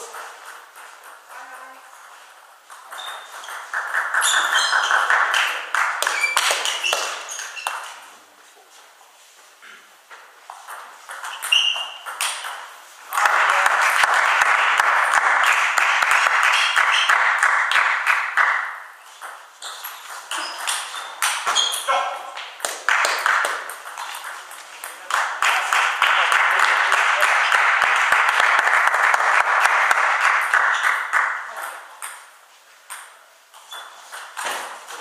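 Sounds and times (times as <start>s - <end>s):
table tennis balls clicking: 2.6s - 7.9s, 10.4s - 21.9s, 22.5s - 25.4s.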